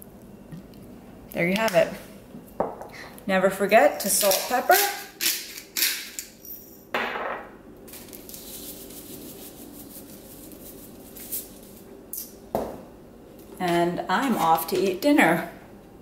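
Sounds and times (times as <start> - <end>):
pepper grinder grinding: 4.0 - 6.5
salt shaking from canister: 7.9 - 11.8.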